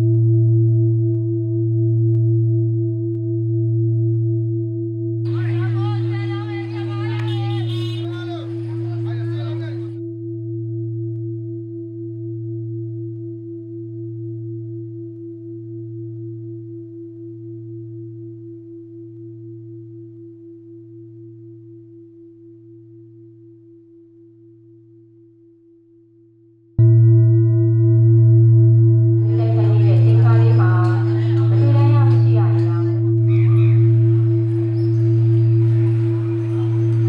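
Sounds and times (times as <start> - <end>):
deep bell ringing: 26.8 - 37.0.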